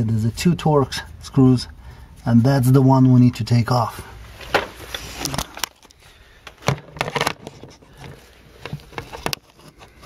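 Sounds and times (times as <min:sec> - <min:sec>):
handling clicks and knocks: 0:04.4 - 0:10.0.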